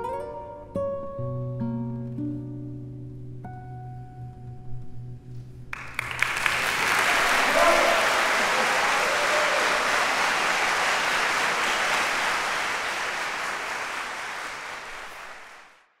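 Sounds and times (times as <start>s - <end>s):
audience applauding: 5.7s - 15.9s.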